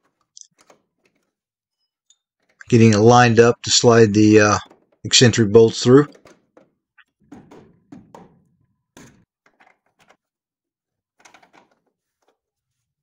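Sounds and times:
faint metal knocks and clunks: 0:00.0 - 0:03.2, 0:04.6 - 0:05.3, 0:06.0 - 0:10.4, 0:11.1 - 0:12.6.

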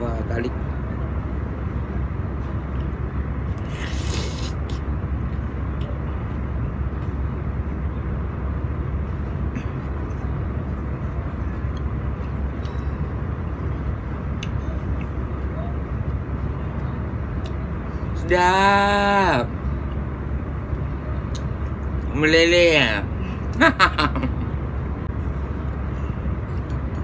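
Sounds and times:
low background rumble: 0:00.0 - 0:27.0
brief hiss: 0:03.6 - 0:04.8.

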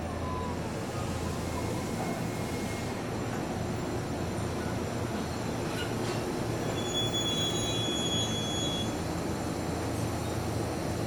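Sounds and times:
high brake squeal: 0:06.6 - 0:09.0.

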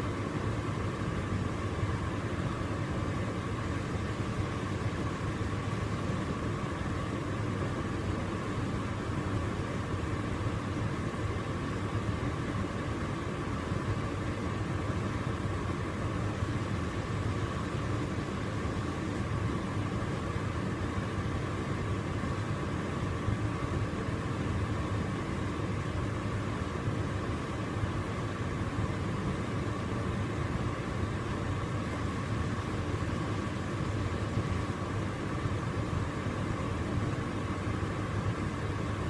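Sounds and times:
tumble dryer running: 0:00.0 - 0:39.0.

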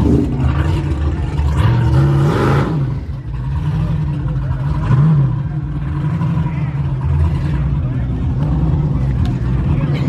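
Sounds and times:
vehicle engine revving: 0:00.0 - 0:10.0
people talking: 0:03.8 - 0:10.0.

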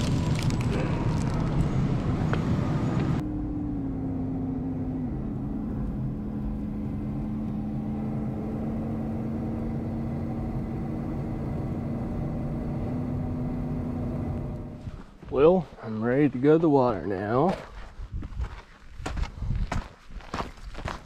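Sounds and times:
plastic packaging rustling: 0:00.0 - 0:01.7
truck engine and road noise: 0:00.0 - 0:17.5.

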